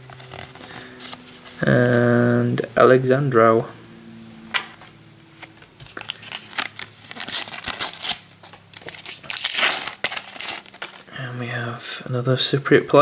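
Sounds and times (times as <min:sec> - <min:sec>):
paper wrapper crinkling: 0:00.0 - 0:02.0, 0:04.5 - 0:11.1.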